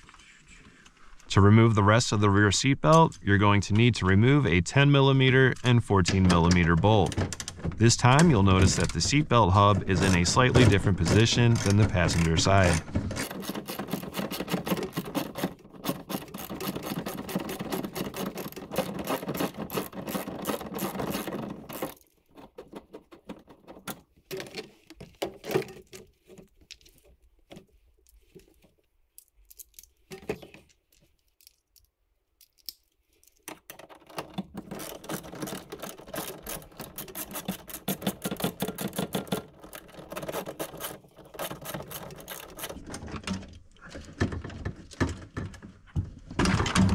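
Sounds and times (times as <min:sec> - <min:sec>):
metal clinks and rattles: 0:29.1 - 0:42.9.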